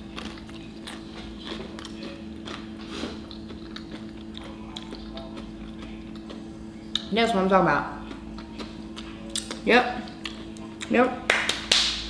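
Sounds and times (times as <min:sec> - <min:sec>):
person crunching tortilla chips: 0:00.0 - 0:06.4
steady low hum: 0:00.0 - 0:12.0.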